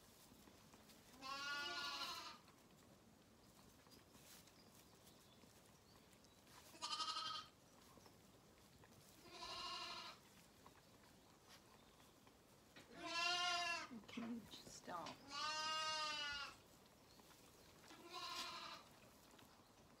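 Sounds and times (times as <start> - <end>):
lambs bleating: 1.2 - 2.4, 6.7 - 7.6, 9.2 - 10.2, 12.9 - 13.9, 15.2 - 16.6, 18.0 - 18.9.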